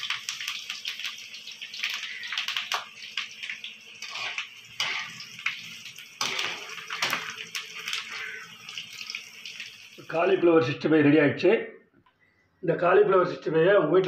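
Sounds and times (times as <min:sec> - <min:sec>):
food sizzling in hot oil: 0:00.0 - 0:10.4
sharp oil crackles: 0:00.0 - 0:10.4.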